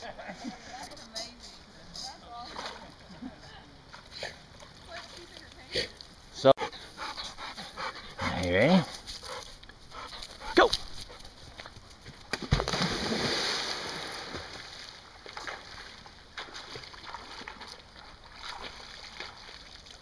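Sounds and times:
dog splashing into river: 0:12.3 - 0:20.0
small splashes: 0:12.3 - 0:20.0.

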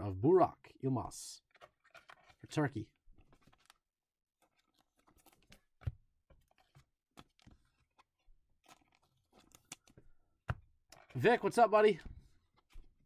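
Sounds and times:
cards clicking and tapping: 0:04.4 - 0:11.2.

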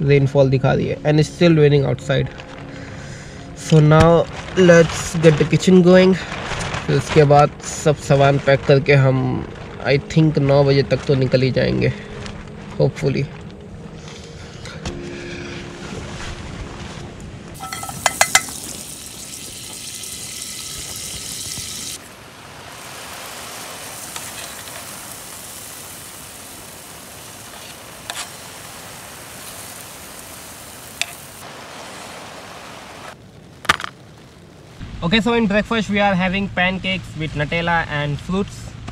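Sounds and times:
metal utensil clinks: 0:17.6 - 0:18.6
batter sizzling in a pan: 0:17.6 - 0:32.7.

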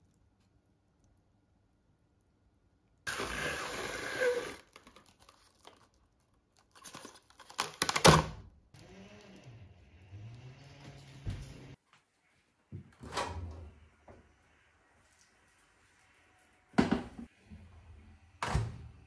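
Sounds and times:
plastic rustling and handling: 0:04.6 - 0:08.1.

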